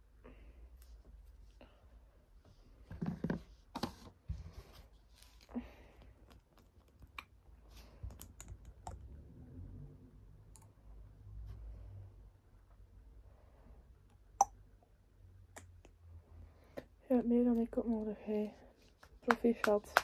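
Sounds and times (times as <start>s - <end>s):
hands rustling: 18.8s - 20.0s.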